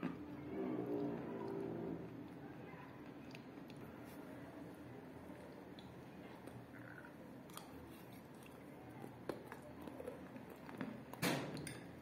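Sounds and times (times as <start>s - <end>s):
chewing mouth sounds: 5.2s - 11.2s.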